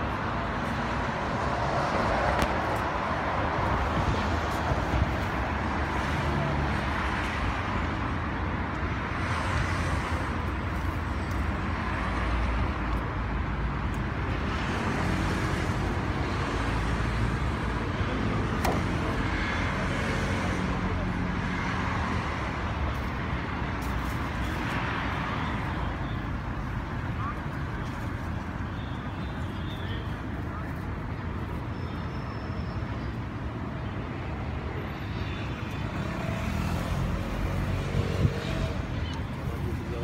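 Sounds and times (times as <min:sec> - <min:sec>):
road traffic noise: 0:00.0 - 0:40.0.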